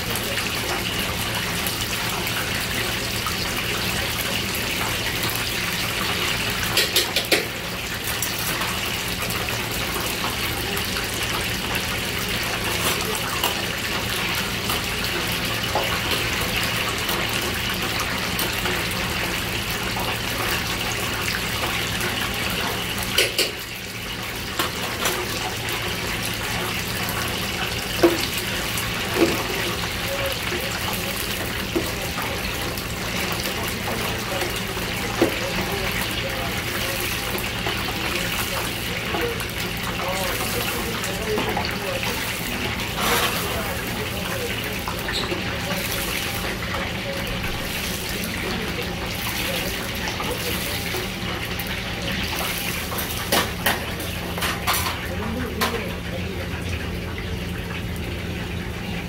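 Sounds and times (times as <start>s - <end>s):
oil sizzling in deep fryer: 0.0s - 59.0s
metal tongs clicking on fryer: 6.7s - 7.5s, 23.1s - 23.6s.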